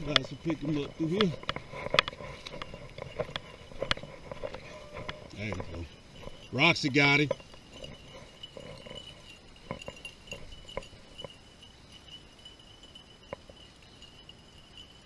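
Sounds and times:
distant dogs barking: 0.0 - 11.4.

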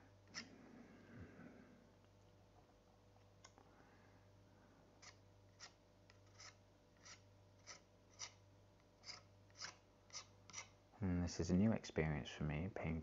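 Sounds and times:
palette knife scraping paint: 5.0 - 8.4, 9.0 - 10.7.

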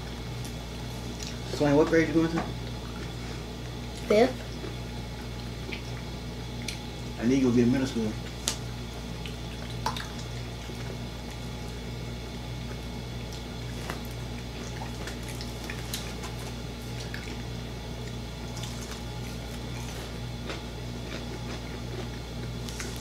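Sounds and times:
steady low hum: 0.0 - 23.0
chewing and mouth clicks: 5.6 - 6.8, 12.7 - 23.0
crunching fried chicken: 7.8 - 23.0.

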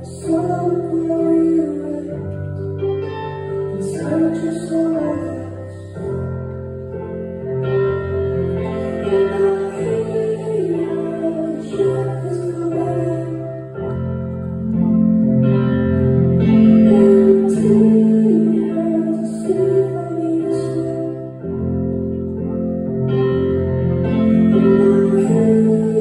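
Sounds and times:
man singing: 0.0 - 2.4, 3.7 - 6.3, 8.8 - 13.6, 16.7 - 21.2, 24.6 - 26.0
electric piano chords: 0.0 - 26.0.

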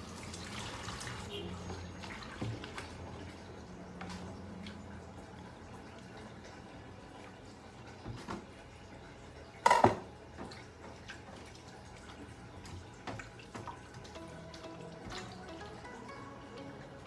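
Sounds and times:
knocks on ceramic plate: 9.7 - 10.1.

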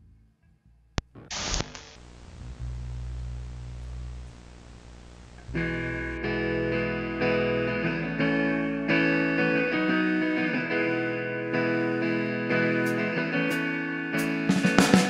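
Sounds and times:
low hum: 0.8 - 8.8
tape hiss: 1.0 - 15.0
burst of static: 1.1 - 6.2
electric guitar strumming chords: 5.4 - 15.0.

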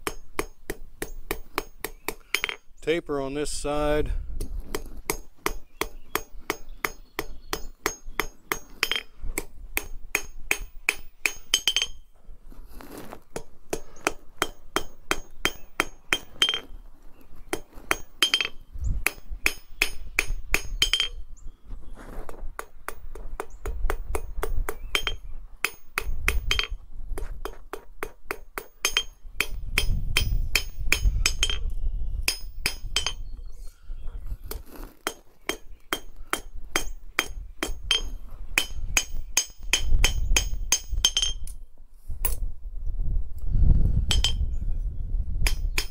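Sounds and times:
hammer striking steel on anvil: 0.0 - 2.6, 5.1 - 12.0, 13.4 - 16.7, 17.5 - 21.2, 24.1 - 26.8, 27.4 - 31.7, 32.3 - 33.3, 35.1 - 41.6, 44.1 - 44.5, 45.4 - 45.9.

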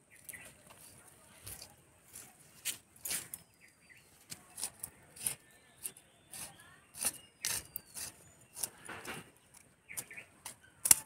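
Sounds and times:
metal blade scraping soil: 4.4 - 9.3.

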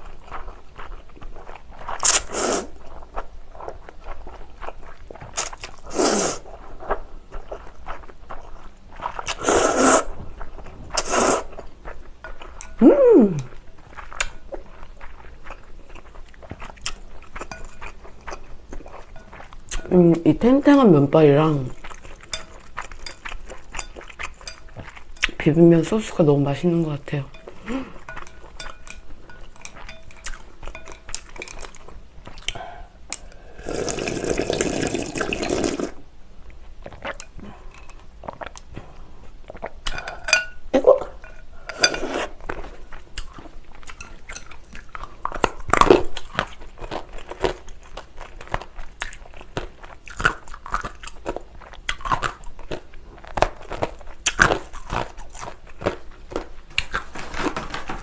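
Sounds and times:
wet chewing: 0.0 - 20.2, 21.4 - 26.2, 27.3 - 57.4
noodle slurp: 5.8 - 6.6, 9.2 - 10.2, 10.9 - 11.6, 33.6 - 36.0.

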